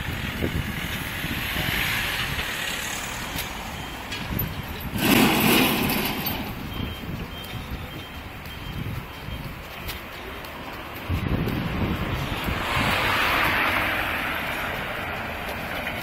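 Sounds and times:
street traffic: 0.0s - 16.0s
vehicle passing close: 11.2s - 16.0s.

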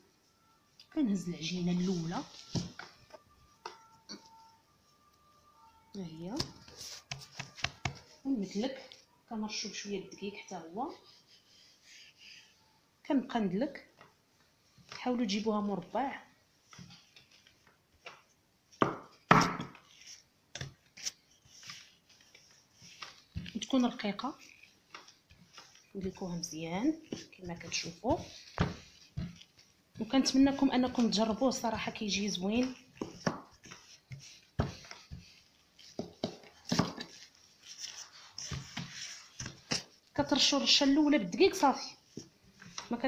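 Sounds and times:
rolling pin thudding on dough: 24.9s - 29.4s, 30.0s - 37.2s
rolling pin knocking and rubbing: 32.6s - 37.2s.

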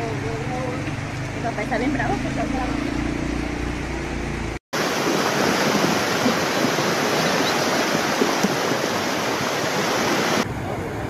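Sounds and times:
floodwater rushing: 4.7s - 10.6s.

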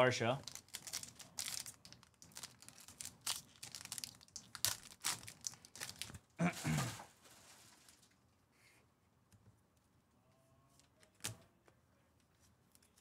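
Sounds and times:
wrappers tearing and crinkling: 0.4s - 6.9s.

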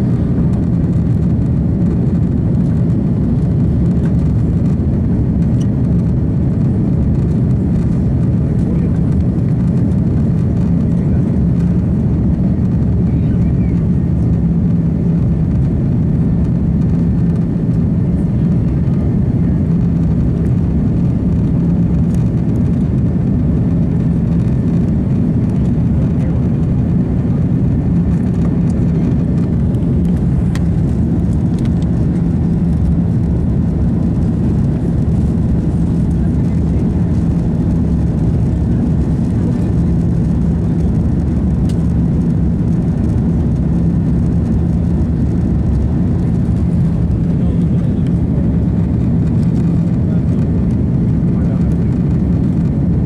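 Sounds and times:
jet engines rumbling: 0.0s - 53.0s.

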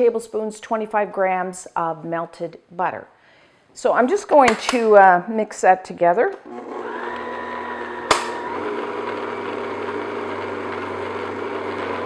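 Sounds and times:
stand mixer motor running: 6.5s - 12.0s
sharp mixer click: 8.0s - 8.5s.

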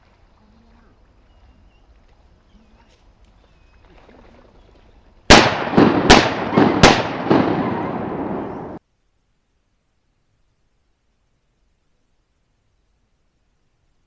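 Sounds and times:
shotgun shots echoing: 5.3s - 8.8s.

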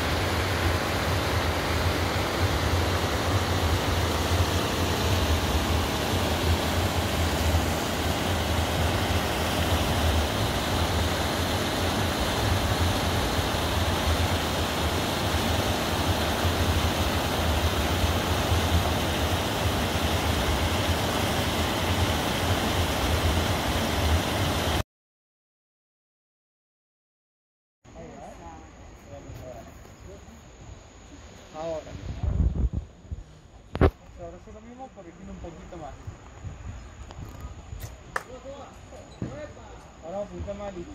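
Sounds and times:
stream rushing over rocks: 0.0s - 24.8s.

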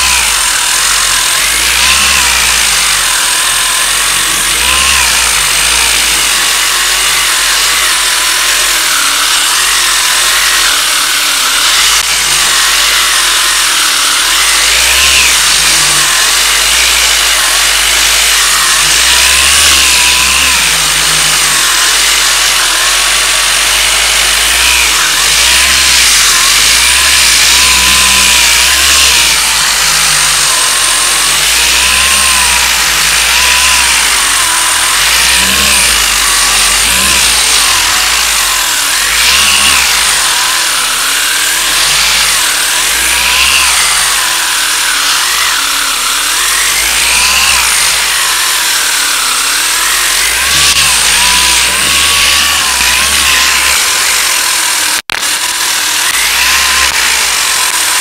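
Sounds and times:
power sander whining: 0.0s - 58.0s.

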